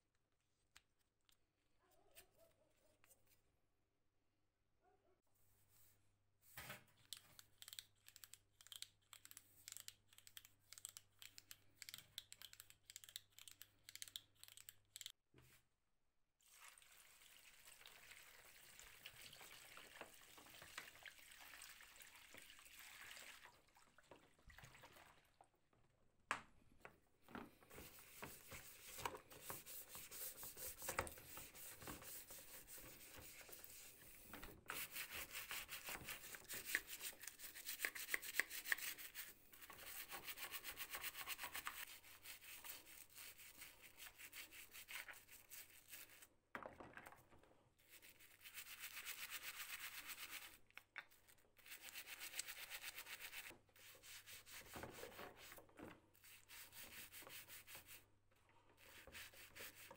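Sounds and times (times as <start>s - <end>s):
brush scrubbing in soapy water: 27.7s - 46.2s, 47.8s - 50.6s, 51.6s - 55.6s, 56.2s - 58.0s, 58.8s - 59.9s.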